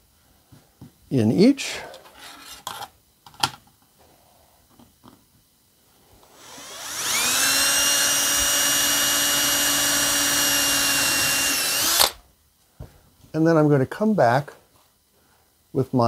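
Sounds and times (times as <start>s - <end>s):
cordless drill whining: 6.2s - 12.2s.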